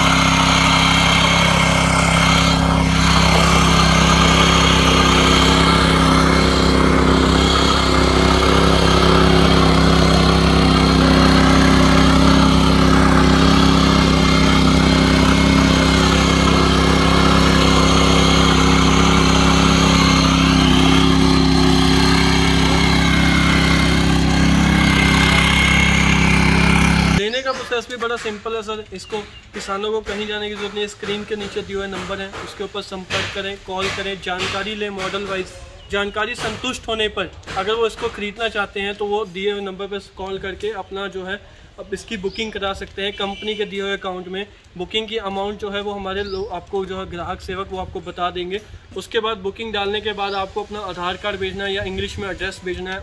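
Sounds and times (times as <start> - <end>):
tiller engine running: 0.0 - 27.2.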